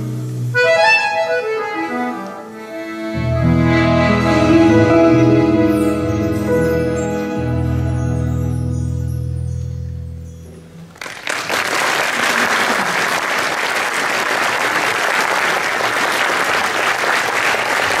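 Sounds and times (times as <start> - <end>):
accordion ensemble low chord: 0.0 - 10.9
audience applause: 10.9 - 18.0.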